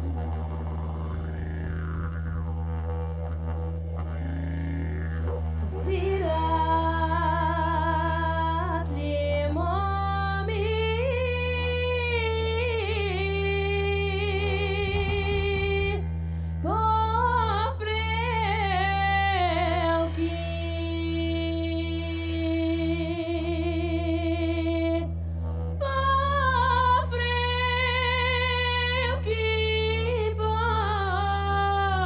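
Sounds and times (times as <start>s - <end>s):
steady low drone: 0.0s - 32.0s
woman singing folk song: 5.6s - 16.0s, 16.6s - 25.1s, 25.8s - 32.0s.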